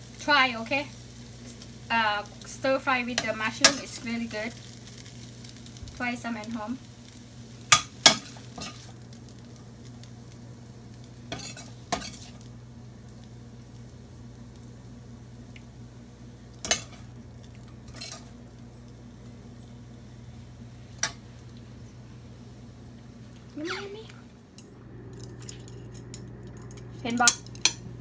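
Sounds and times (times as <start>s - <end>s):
low steady hum: 0.0s - 28.0s
metal tongs clinking on wok: 3.1s - 4.1s, 7.7s - 8.9s, 11.3s - 12.4s, 16.6s - 18.3s, 24.6s - 27.9s.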